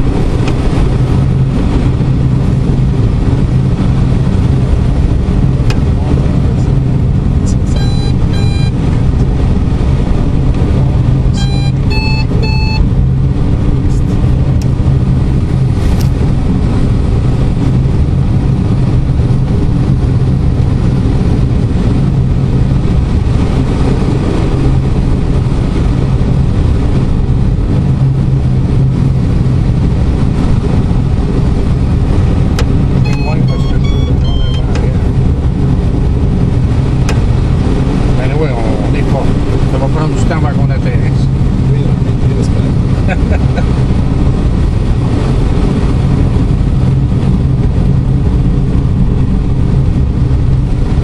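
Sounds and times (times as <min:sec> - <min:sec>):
airflow rushing in cockpit: 0:00.0 - 0:51.0
short electronic beeps: 0:07.5 - 0:08.8, 0:11.3 - 0:12.9, 0:33.0 - 0:34.9.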